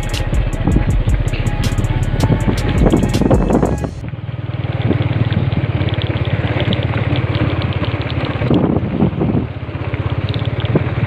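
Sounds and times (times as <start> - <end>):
wind on microphone: 0.0 - 4.1, 4.7 - 11.0
small motorcycle engine putter: 4.5 - 11.0.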